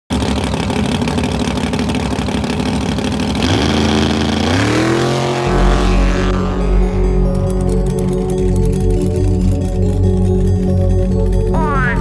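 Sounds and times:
drag racing car engine running rough: 0:00.1 - 0:12.0
music with rising tones: 0:04.4 - 0:12.0
steady deep bass: 0:05.3 - 0:12.0.

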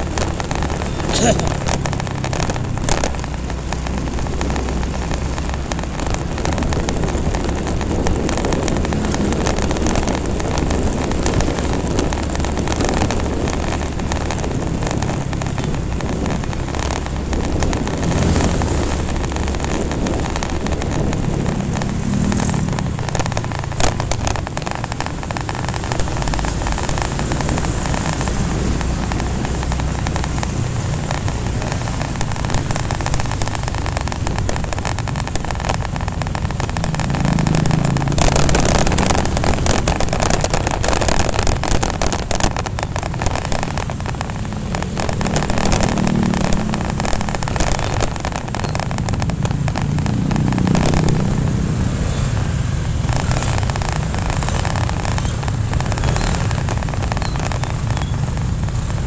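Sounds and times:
motorcycle engines running: 0:00.0 - 0:59.0
wind rushing over microphone: 0:00.0 - 0:59.0.

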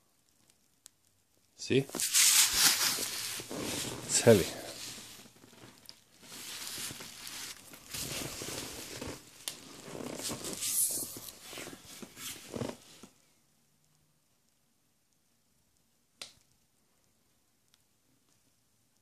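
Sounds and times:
cardboard and styrofoam rustling: 0:01.9 - 0:13.0.

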